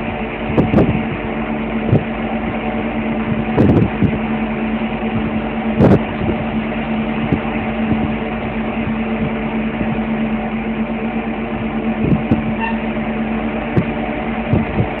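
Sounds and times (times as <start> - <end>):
vehicle engine droning: 0.0 - 15.0.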